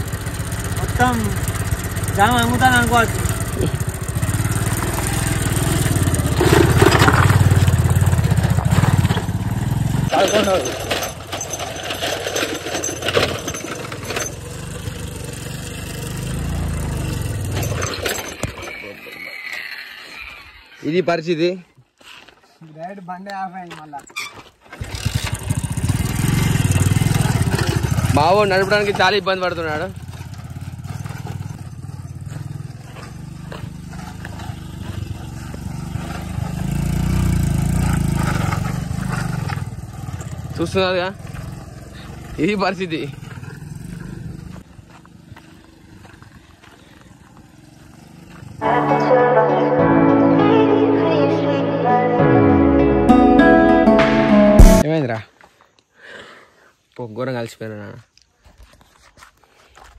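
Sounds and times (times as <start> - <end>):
motorcycle engine labouring uphill: 0.0 - 20.7, 24.6 - 49.0
motorcycle rattling over rough road: 0.0 - 20.9, 24.2 - 48.9.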